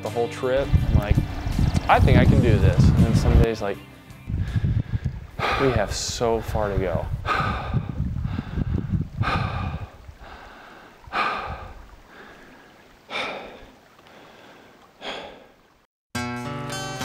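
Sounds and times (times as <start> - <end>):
low rumble: 0.6 - 3.5, 4.2 - 10.3
person gasping for breath: 4.4 - 5.8, 7.2 - 15.6.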